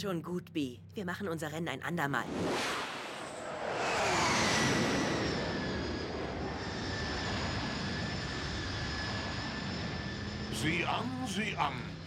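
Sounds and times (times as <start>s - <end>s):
jet rushing past: 2.2s - 10.7s
whine sliding down in pitch: 2.3s - 10.2s.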